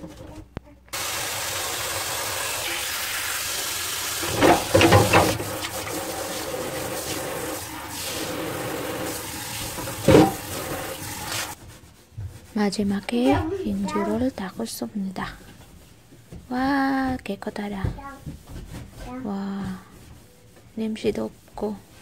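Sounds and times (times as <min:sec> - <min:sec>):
tap running into metal basin: 0:01.0 - 0:11.6
water splashing over metal parts: 0:01.0 - 0:11.6.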